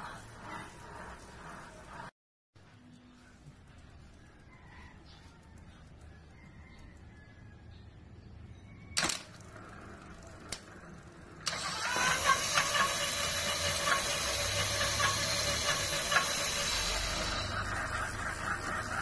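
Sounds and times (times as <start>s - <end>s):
light irregular ticks: 3.2s - 7.5s
electric motor whining: 11.4s - 19.0s.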